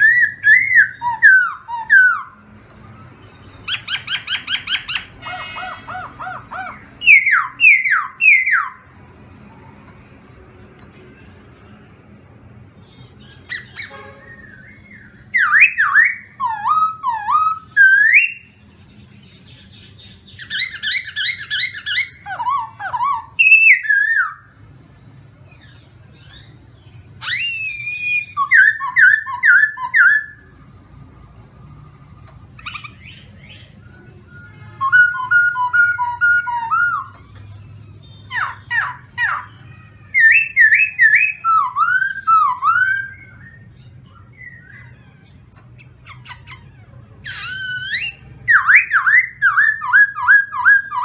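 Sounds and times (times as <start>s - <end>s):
bird singing whistled phrases: 0.0s - 2.4s, 3.6s - 8.8s, 13.2s - 18.5s, 20.3s - 24.5s, 27.2s - 30.5s, 32.6s - 37.2s, 40.1s - 45.0s, 47.2s - 51.0s.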